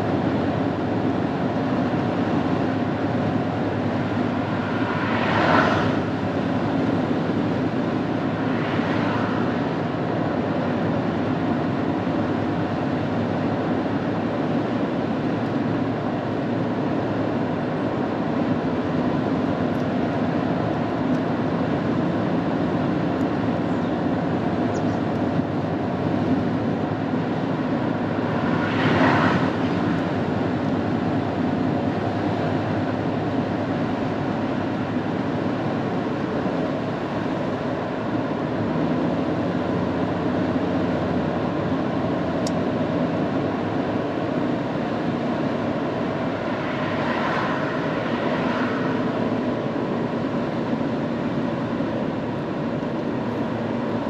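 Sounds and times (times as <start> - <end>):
car road and engine noise: 0.0 - 54.0
passing vehicle whooshing: 2.7 - 11.4, 26.0 - 35.4, 44.6 - 51.5.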